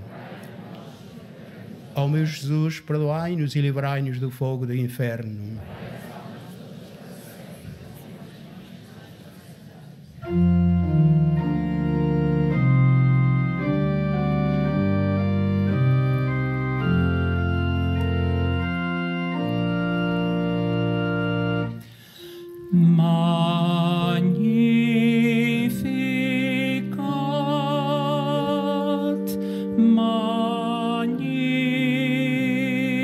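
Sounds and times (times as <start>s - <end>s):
church organ chords: 10.2s - 33.0s
person singing with vibrato: 22.2s - 33.0s.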